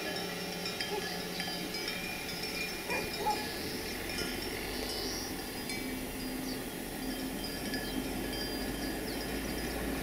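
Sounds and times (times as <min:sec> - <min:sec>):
livestock bells clinking: 0:00.0 - 0:10.0
outdoor ambience: 0:00.0 - 0:10.0
bird chirps: 0:04.6 - 0:09.9.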